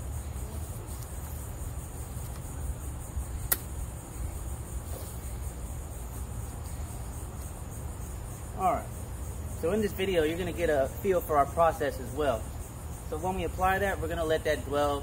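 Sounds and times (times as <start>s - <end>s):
insects trilling: 0.0s - 15.0s
sharp click: 3.4s - 3.7s.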